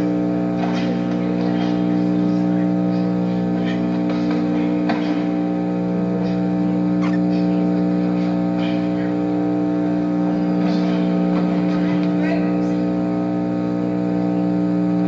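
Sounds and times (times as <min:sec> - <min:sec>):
low electrical hum: 0:05.4 - 0:10.0.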